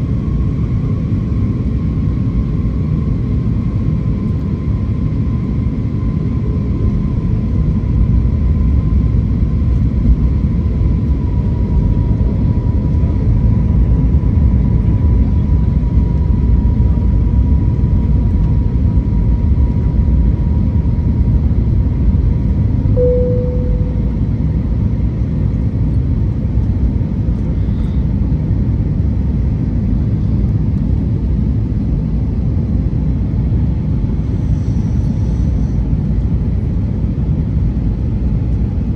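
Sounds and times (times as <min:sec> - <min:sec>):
airliner cabin rumble: 0:00.0 - 0:38.9
single tone: 0:23.0 - 0:24.6
faint high whine: 0:23.0 - 0:24.8.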